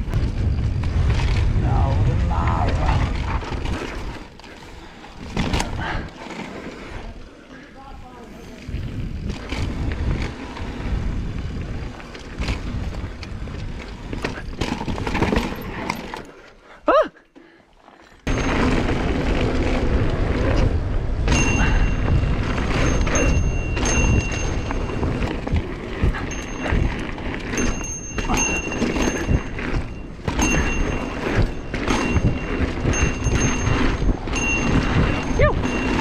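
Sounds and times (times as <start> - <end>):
wind buffeting microphone: 0.0 - 6.1, 7.9 - 15.8, 18.3 - 36.0
bike tyre rumble: 0.0 - 16.8, 17.7 - 36.0
bike rattling knocks: 5.2 - 6.0, 12.1 - 16.2, 21.2 - 36.0.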